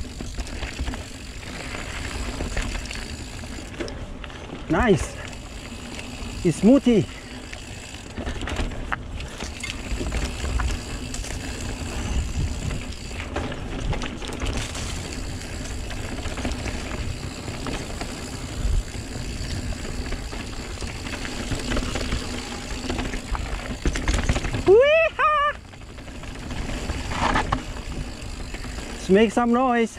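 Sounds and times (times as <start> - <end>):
bike clicks and rattles: 0.0 - 29.9
bike tyres on dirt trail: 0.0 - 29.9.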